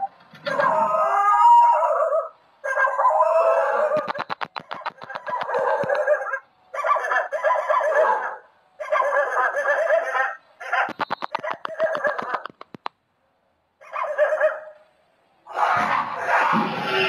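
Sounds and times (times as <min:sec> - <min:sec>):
dog yelping: 0:00.5 - 0:12.5, 0:13.8 - 0:14.8
dog crying in distress: 0:05.2 - 0:10.4.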